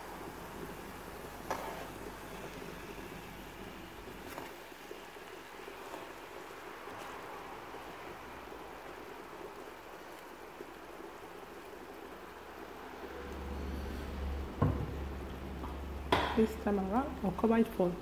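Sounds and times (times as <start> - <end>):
sauce sizzling in a frying pan: 0.0 - 18.0
spatula scraping a pan: 1.4 - 2.0
low rumble: 13.0 - 16.1.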